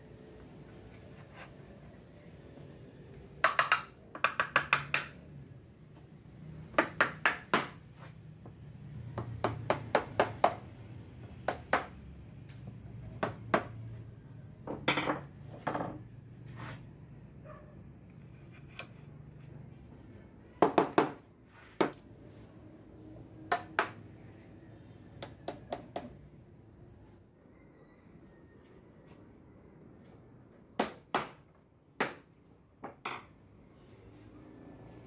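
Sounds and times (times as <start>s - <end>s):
mallets knocking on wood: 3.4s - 5.2s.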